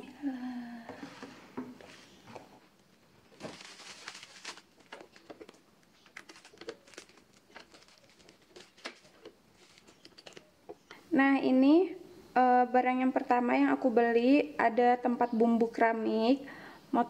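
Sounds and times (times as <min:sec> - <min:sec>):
bubble wrap crinkling: 0:03.2 - 0:10.5
scissors cutting plastic film: 0:03.4 - 0:09.3.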